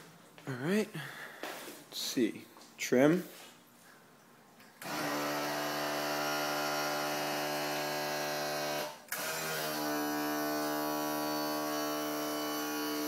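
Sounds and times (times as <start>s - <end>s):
electric tilt motor buzzing: 4.8s - 13.0s.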